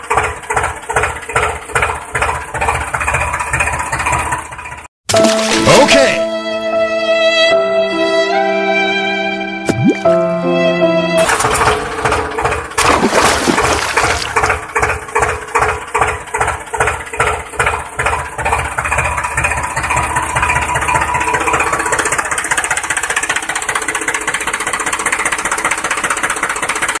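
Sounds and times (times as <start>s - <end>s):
tractor engine chugging: 0.0s - 4.9s, 11.2s - 27.0s.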